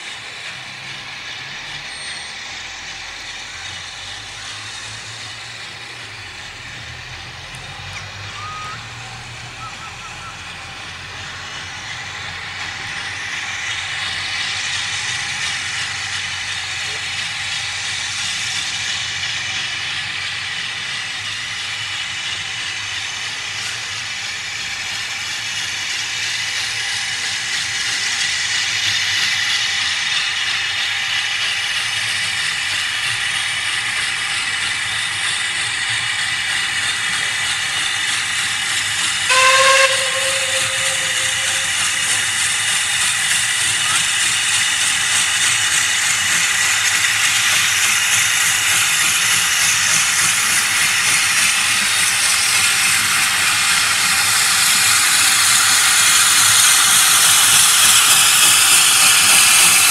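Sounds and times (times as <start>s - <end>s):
steam locomotive hissing: 0.0s - 59.9s
steam whistle toot: 8.3s - 9.0s, 39.2s - 44.0s.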